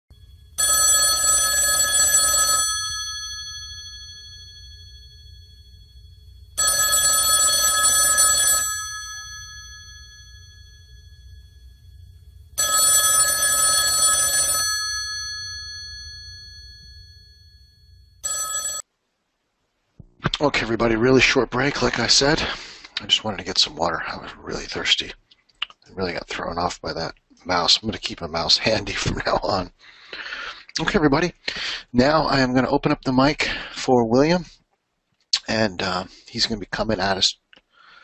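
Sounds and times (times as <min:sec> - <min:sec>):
telephone bell ringing: 0:00.5 - 0:11.8, 0:12.5 - 0:18.9.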